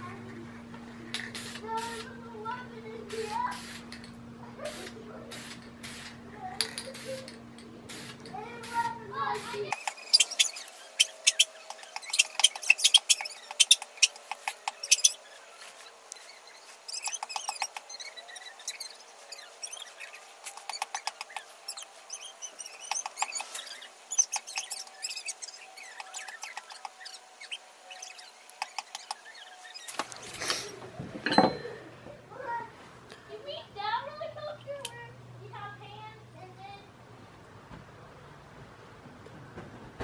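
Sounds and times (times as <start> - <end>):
faint high squeaks: 9.5 - 31.8.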